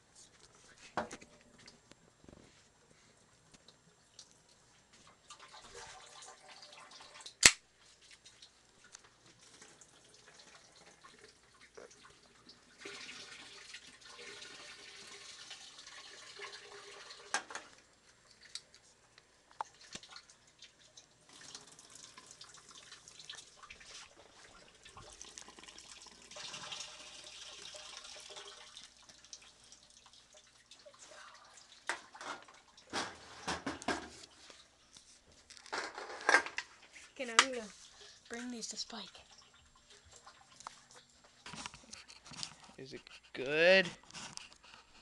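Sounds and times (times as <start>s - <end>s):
tap water running into sink: 5.3s - 7.5s, 9.4s - 17.8s, 19.6s - 34.1s.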